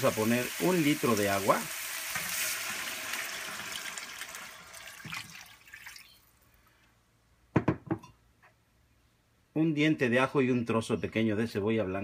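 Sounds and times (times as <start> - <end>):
pan sizzling: 0.0 - 6.2
water pouring into hot pan: 0.0 - 6.4.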